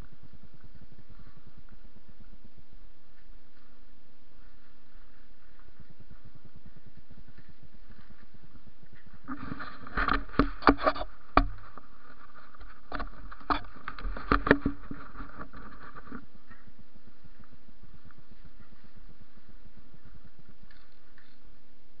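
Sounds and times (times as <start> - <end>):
clothing rustling on camera: 4.4 - 16.7
sharp knocks and clicks: 10.0 - 11.7, 12.9 - 15.7.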